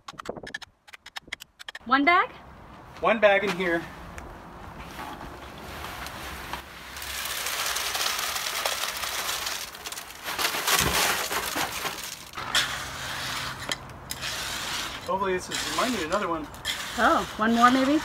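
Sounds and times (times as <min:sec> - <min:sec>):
wet concrete sliding and spilling: 0:05.6 - 0:18.0.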